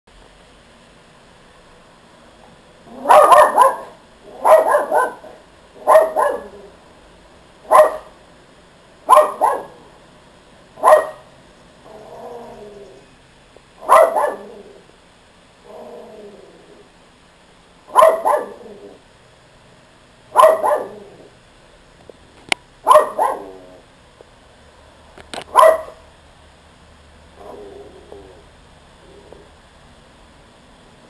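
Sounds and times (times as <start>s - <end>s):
quiet low sounds: 0.1s - 31.0s
small dog barking: 2.9s - 6.7s, 7.6s - 8.2s, 9.1s - 9.9s, 10.8s - 11.3s, 13.8s - 14.7s, 17.9s - 18.8s, 20.3s - 21.2s, 22.8s - 23.8s, 25.5s - 26.0s.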